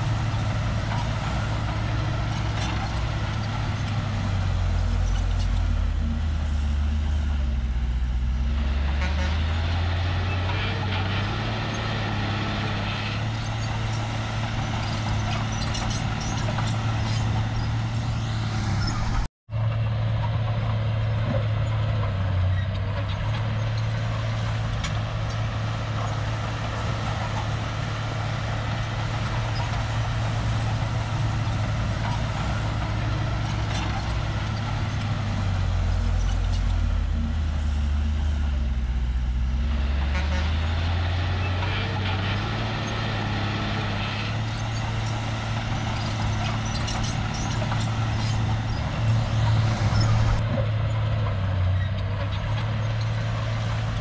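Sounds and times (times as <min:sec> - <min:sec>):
deep rumble: 0:00.0 - 0:09.2, 0:22.9 - 0:40.4
bulldozer diesel engine running: 0:00.0 - 0:54.0.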